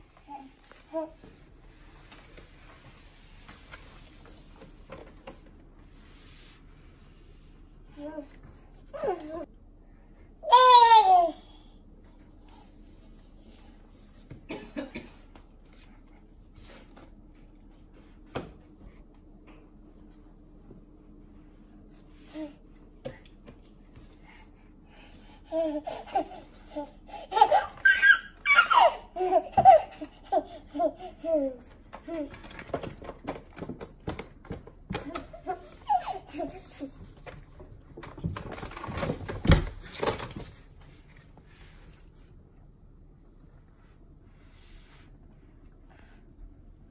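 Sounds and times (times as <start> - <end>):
baby laughing and squealing: 27.2 - 31.4.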